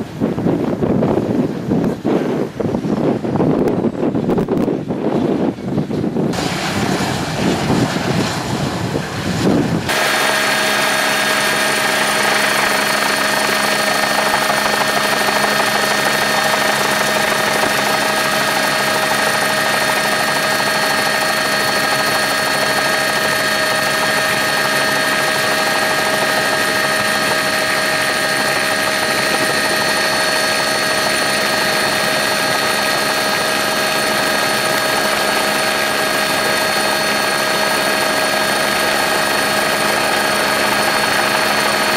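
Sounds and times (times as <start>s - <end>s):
helicopter turbine engine whine: 0.0s - 41.9s
wind buffeting microphone: 0.0s - 41.9s.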